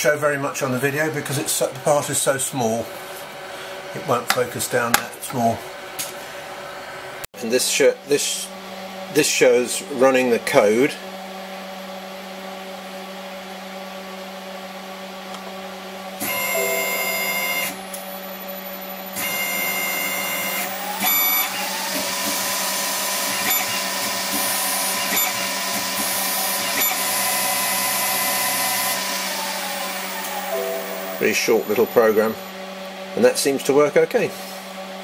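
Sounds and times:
axis motors whining: 0:16.2 - 0:32.6
spindle motor whining: 0:16.2 - 0:32.6
electrical hum: 0:16.2 - 0:33.5.

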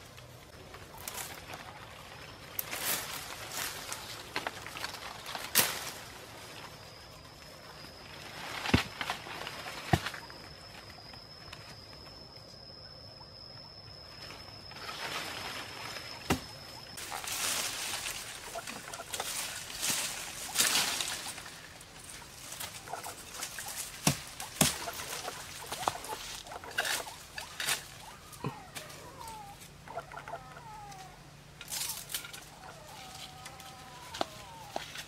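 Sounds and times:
leaves and brush rustling: 0:00.0 - 0:12.5, 0:13.9 - 0:35.0.

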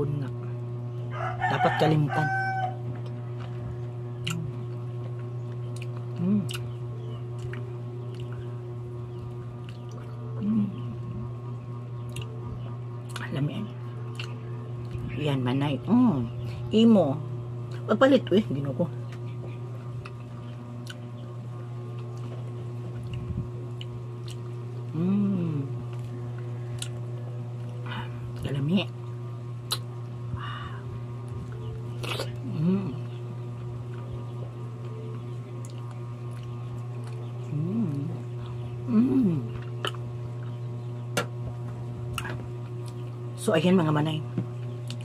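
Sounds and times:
steady low hum: 0:00.0 - 0:45.0
person humming mmm: 0:06.1 - 0:06.8, 0:10.1 - 0:11.3, 0:24.8 - 0:26.1, 0:29.7 - 0:31.1, 0:32.0 - 0:33.2, 0:37.4 - 0:40.0.

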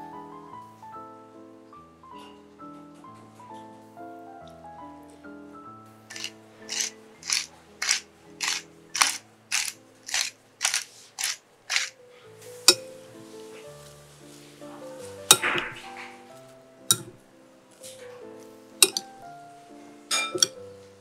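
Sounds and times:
salt shaker scratchy strokes: 0:06.1 - 0:11.9
metal spoon clinking glass bowl: 0:15.3 - 0:15.8, 0:16.9 - 0:17.2, 0:18.8 - 0:19.1, 0:20.1 - 0:20.6
sharp click: 0:15.3 - 0:15.8, 0:16.9 - 0:17.2, 0:18.8 - 0:19.1.

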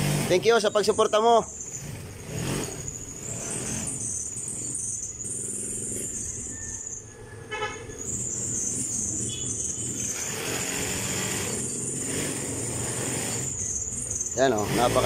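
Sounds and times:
horn toot: 0:07.5 - 0:08.1.

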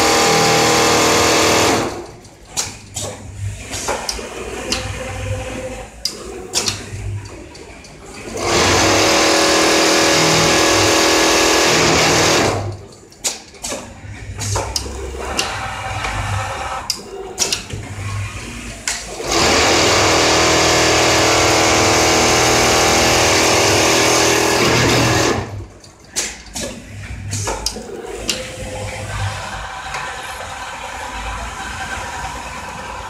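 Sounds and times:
sewing machine stitching: 0:00.0 - 0:02.2, 0:08.1 - 0:12.8, 0:18.8 - 0:25.7
machine clicks and clatter: 0:00.0 - 0:30.2.

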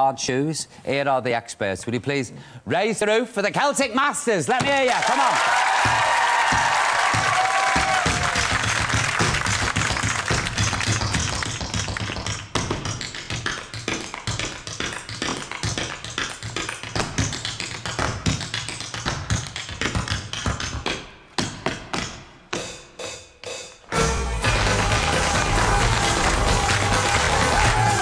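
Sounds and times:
hard shoes beating on stage: 0:04.6 - 0:28.0
dance music: 0:23.9 - 0:28.0.

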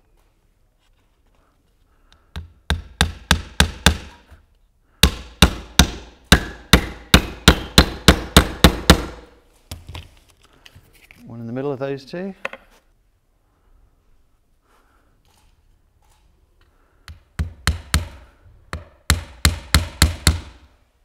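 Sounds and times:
hammer driving nails into wood: 0:02.3 - 0:04.4, 0:05.0 - 0:09.3, 0:17.0 - 0:20.7.

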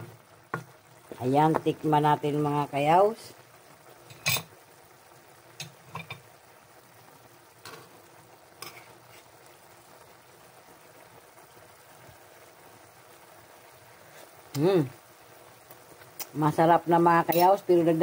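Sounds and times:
food sizzling in a wok: 0:00.0 - 0:18.0
spoon scraping a wok: 0:08.6 - 0:09.4.

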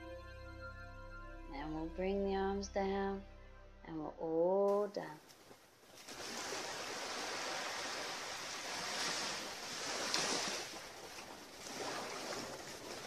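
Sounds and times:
small waves lapping on rocks: 0:05.8 - 0:13.0.

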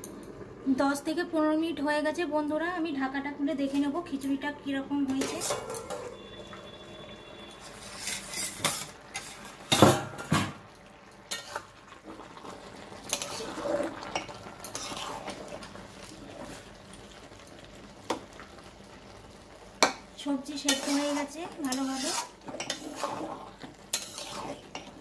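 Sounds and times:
spatula scraping metal pan: 0:05.1 - 0:06.8, 0:07.4 - 0:09.8, 0:11.3 - 0:11.7, 0:13.0 - 0:15.5, 0:20.5 - 0:25.0.

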